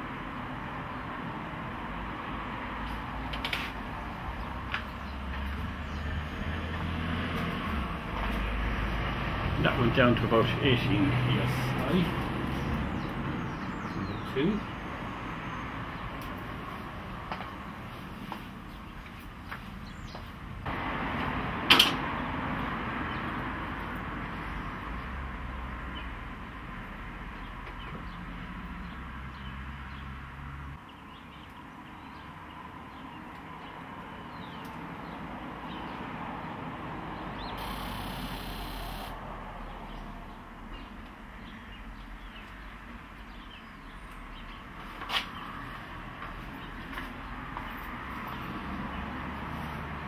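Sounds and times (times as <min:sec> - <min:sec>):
electric fuel pump humming: 0:37.6 - 0:39.2.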